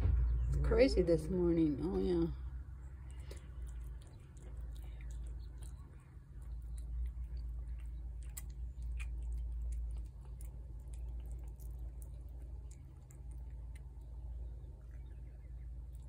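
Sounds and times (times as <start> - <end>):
low rumble: 0.0 - 16.0
cat chewing and lapping: 2.5 - 16.0.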